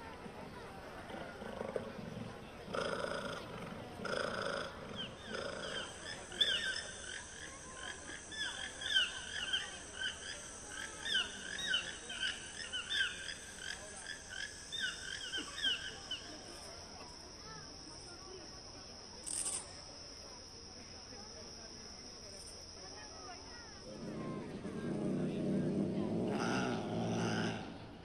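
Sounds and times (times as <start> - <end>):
chirping animal calls: 4.1 - 16.3.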